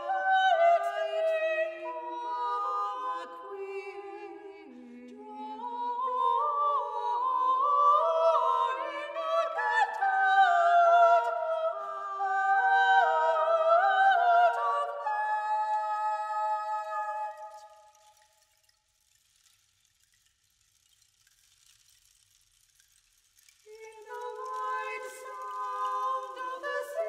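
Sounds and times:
two women singing classical duet: 0.0 - 17.6, 23.7 - 27.0.

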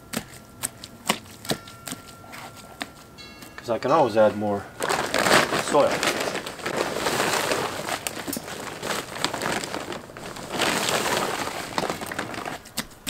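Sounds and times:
plastic sack rustling: 2.4 - 13.0
dry soil scooped by hand: 5.3 - 12.8.

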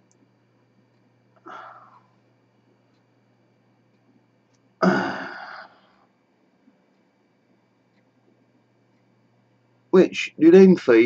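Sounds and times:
man sighing: 4.8 - 5.8.

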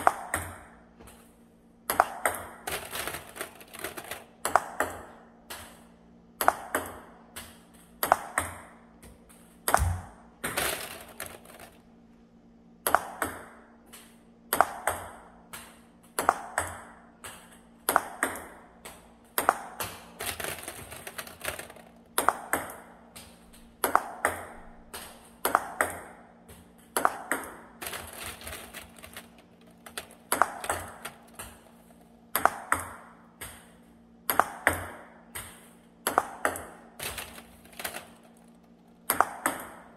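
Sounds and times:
table tennis ball clicking: 1.9 - 5.8, 9.7 - 11.8, 15.6 - 26.1, 26.8 - 39.9.

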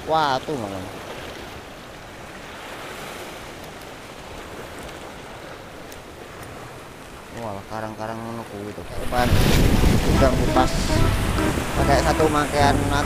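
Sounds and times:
surf breaking over rocks: 8.8 - 13.0.

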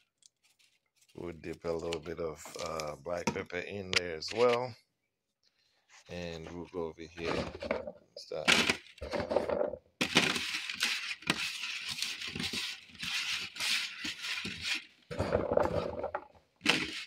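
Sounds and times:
potatoes clattering on metal pan: 8.5 - 17.0.

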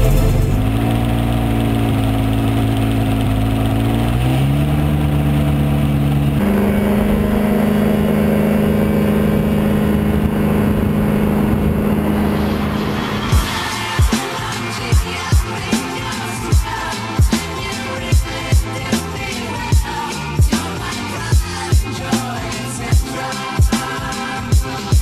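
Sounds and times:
propeller whirring: 0.0 - 19.4
two-stroke engine running: 0.0 - 22.2
wind noise: 9.3 - 14.0.

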